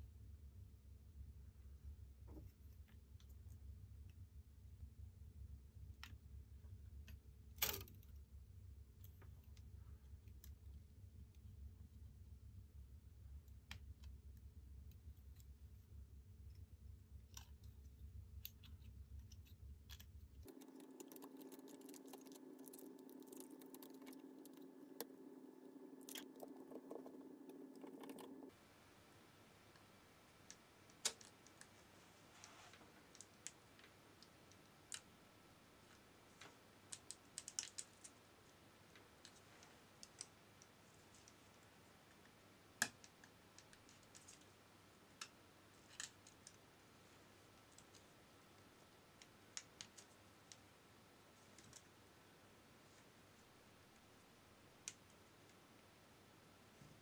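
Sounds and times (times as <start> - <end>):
faint hum: 0.0 - 57.0
small clicks and taps: 16.4 - 28.6, 35.9 - 38.2.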